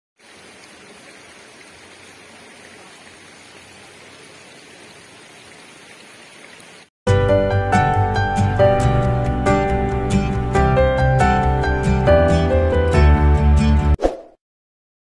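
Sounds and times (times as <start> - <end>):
shallow water flowing over pebbles: 0.2 - 6.9.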